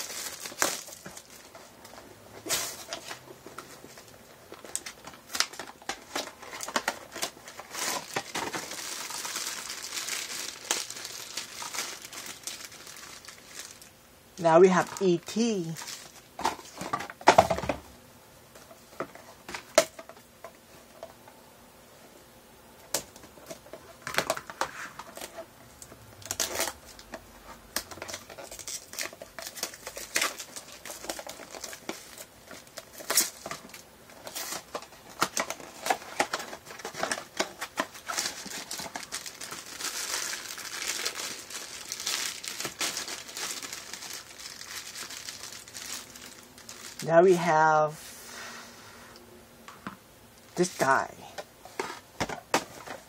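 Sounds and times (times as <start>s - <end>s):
packaging crinkling and tearing: 0.0s - 14.0s, 14.8s - 17.8s, 22.9s - 47.1s.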